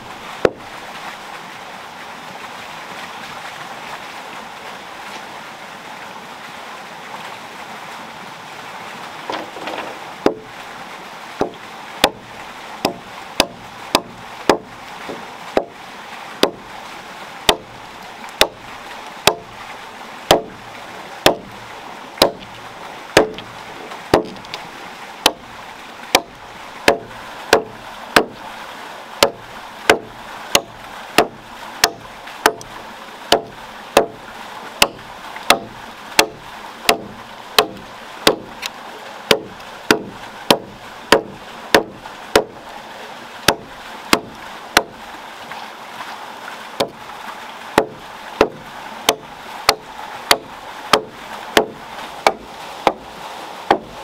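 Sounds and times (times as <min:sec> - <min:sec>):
axe chopping wood: 0:09.3 - 0:10.4, 0:11.4 - 0:12.2, 0:12.8 - 0:14.7, 0:17.5 - 0:17.7, 0:18.4 - 0:18.6, 0:19.2 - 0:19.5, 0:20.3 - 0:20.6, 0:21.2 - 0:21.5, 0:22.2 - 0:22.5, 0:23.2 - 0:23.5, 0:24.1 - 0:24.4, 0:25.2 - 0:25.4, 0:26.1 - 0:28.4, 0:29.2 - 0:32.7, 0:33.3 - 0:34.2, 0:34.8 - 0:38.5, 0:39.3 - 0:42.6, 0:43.5 - 0:44.9, 0:47.8 - 0:53.0, 0:53.7 - 0:53.9.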